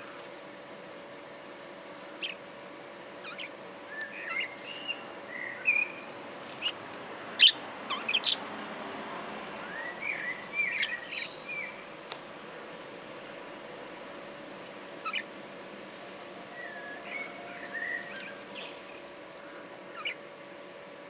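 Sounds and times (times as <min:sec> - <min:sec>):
faint steady hum: 0:00.0 - 0:21.0
budgerigars chattering: 0:02.2 - 0:02.4, 0:03.2 - 0:05.5, 0:07.4 - 0:08.4, 0:10.1 - 0:11.6, 0:15.0 - 0:15.3, 0:19.9 - 0:20.2.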